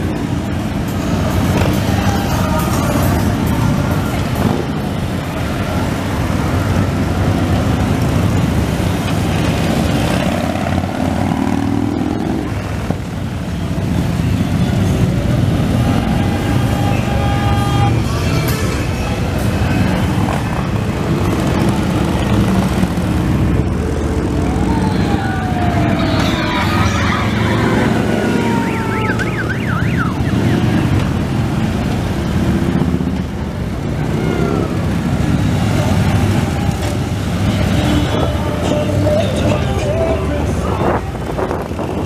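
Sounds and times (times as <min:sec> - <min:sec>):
motorcycles rumbling past: 0:05.8 - 0:13.0, 0:19.5 - 0:29.5
falling siren-like tone: 0:24.6 - 0:30.8.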